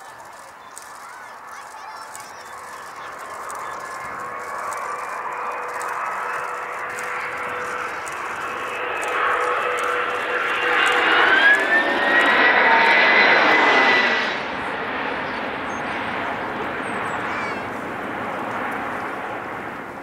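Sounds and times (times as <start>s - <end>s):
high engine whine: 0.0s - 20.0s
jet aircraft passing overhead: 0.0s - 20.0s.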